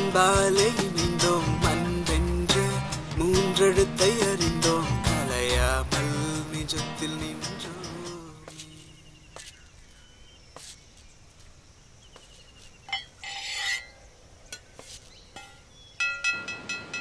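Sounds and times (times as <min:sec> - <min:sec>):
background music: 0:00.0 - 0:08.7
faint bird chirps: 0:08.5 - 0:16.2.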